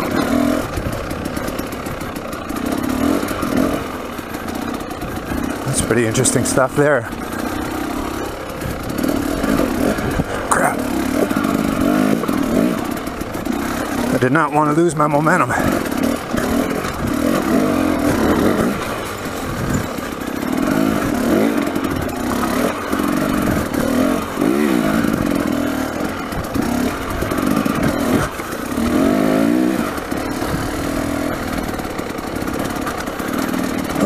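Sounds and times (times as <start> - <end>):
dirt bike engine revving: 0.0 - 34.0.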